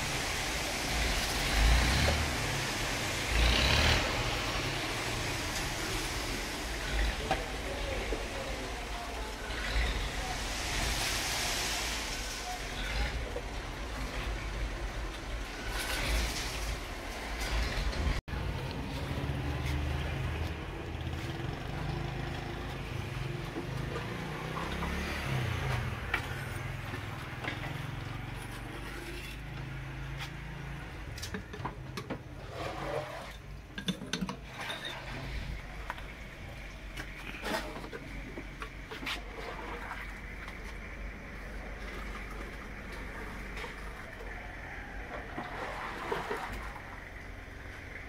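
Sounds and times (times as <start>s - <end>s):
metal ladle clinking on pots: 33.7s - 34.9s.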